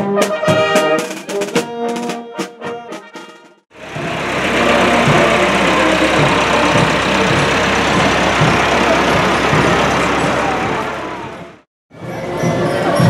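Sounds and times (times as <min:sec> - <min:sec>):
vehicle engine running: 0:03.8 - 0:11.7.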